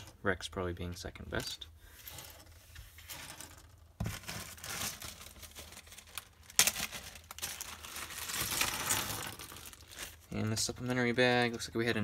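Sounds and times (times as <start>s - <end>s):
sharp plastic crackle: 4.0s - 10.4s
plastic bag crinkling: 4.0s - 10.6s.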